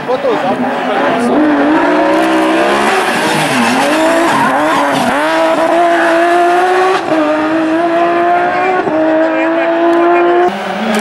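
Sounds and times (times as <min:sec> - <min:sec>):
car engine accelerating with upshifts: 0:00.0 - 0:11.0.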